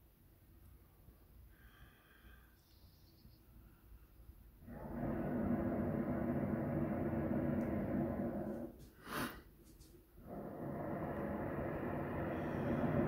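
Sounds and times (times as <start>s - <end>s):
propane burner blast: 4.6s - 9.6s, 10.2s - 13.0s
short hiss: 8.8s - 10.0s.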